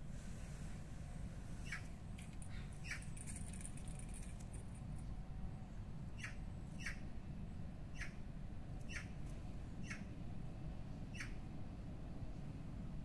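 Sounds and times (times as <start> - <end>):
low steady rumble: 0.0 - 13.0
small bird chirping: 1.6 - 4.2, 6.1 - 7.1, 7.9 - 8.2, 8.8 - 9.2, 9.8 - 10.1, 11.1 - 11.4.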